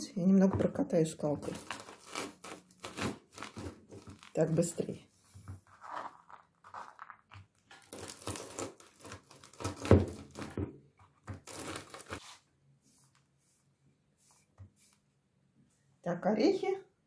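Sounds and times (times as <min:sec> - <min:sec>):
nuts crunching under rolling pin: 0:05.6 - 0:12.2.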